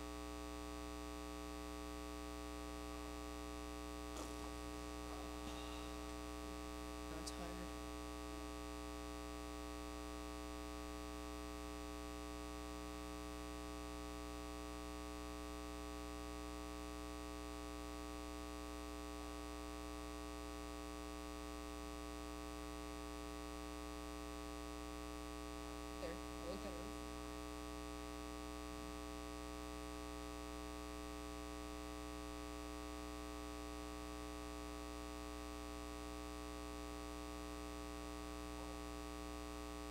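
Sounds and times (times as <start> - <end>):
electrical mains hum: 0.0 - 39.9
faint voices: 4.2 - 6.1.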